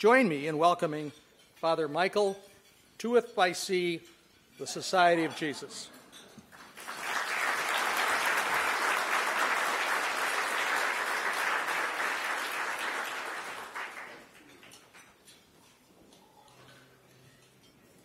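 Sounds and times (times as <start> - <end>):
audience applauding: 6.6 - 14.4.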